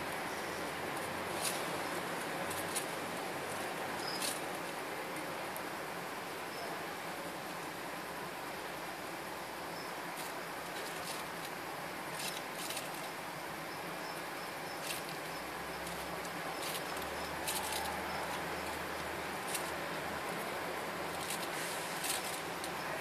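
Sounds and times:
steady hiss: 0:00.0 - 0:23.0
claws scratching on newspaper: 0:01.0 - 0:04.8, 0:10.1 - 0:13.4, 0:14.2 - 0:23.0.

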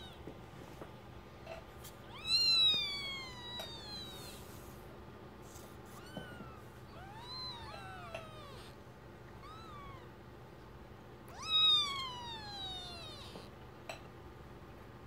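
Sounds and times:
newborn kittens mewing: 0:02.0 - 0:04.6, 0:05.5 - 0:10.2, 0:11.3 - 0:13.6.

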